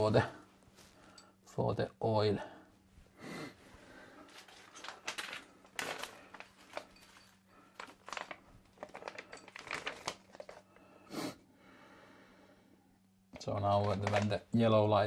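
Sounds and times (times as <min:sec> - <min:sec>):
paper rustling and crinkling: 0:04.2 - 0:10.8, 0:13.4 - 0:14.5.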